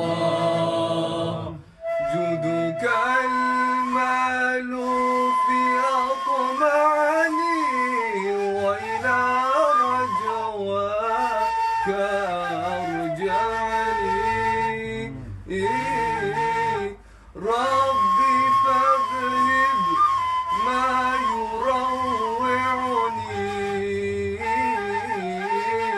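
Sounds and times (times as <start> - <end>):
man singing devotional song: 0.0 - 25.9.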